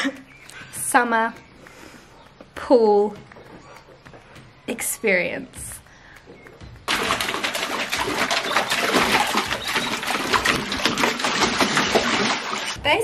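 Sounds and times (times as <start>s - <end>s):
dog splashing in water: 6.9s - 12.8s.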